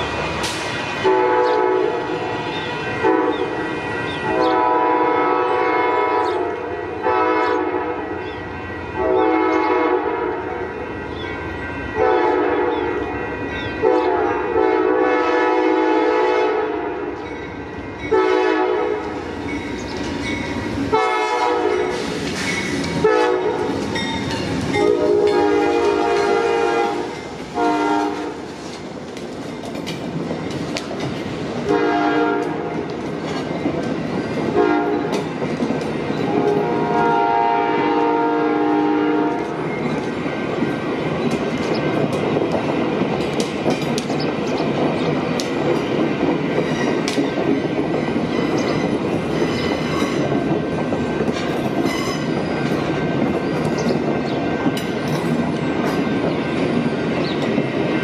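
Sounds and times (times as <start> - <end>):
train wheels clicking: 0.0 - 4.6, 17.0 - 38.2, 39.2 - 58.0
train rumbling on rails: 0.0 - 58.0
locomotive air horn blasts: 1.0 - 2.2, 2.9 - 8.1, 8.9 - 10.6, 12.0 - 13.0, 13.8 - 17.1, 18.1 - 19.2, 20.9 - 22.1, 23.0 - 23.8, 24.8 - 28.5, 31.6 - 32.7, 34.5 - 35.1, 36.3 - 39.6.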